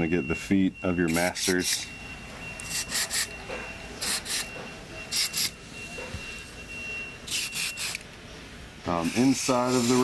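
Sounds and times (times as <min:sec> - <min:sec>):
aerosol can hissing bursts: 0:09.0 - 0:10.0.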